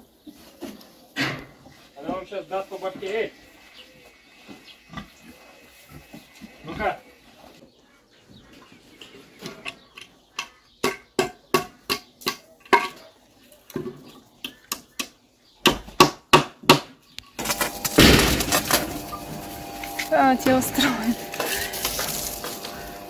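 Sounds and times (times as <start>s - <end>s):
garden hose spraying water: 1.9s - 7.6s, 17.4s - 23.0s.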